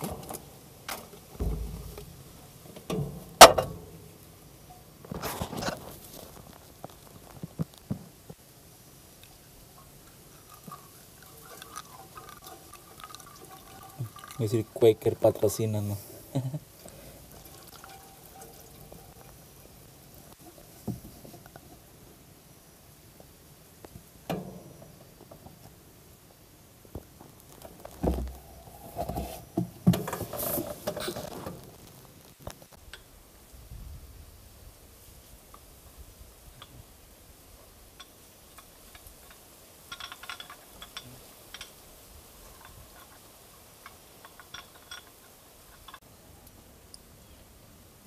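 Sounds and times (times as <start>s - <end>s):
fluid pouring into plastic funnel: 10.4s - 15.0s, 16.8s - 19.3s.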